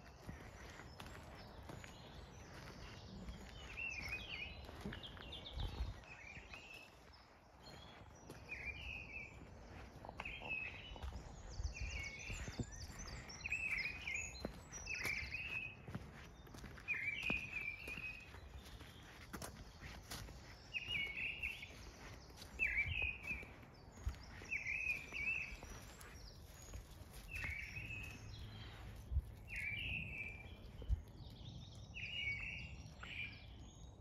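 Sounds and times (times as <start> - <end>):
songbirds singing: 0.0 - 34.0.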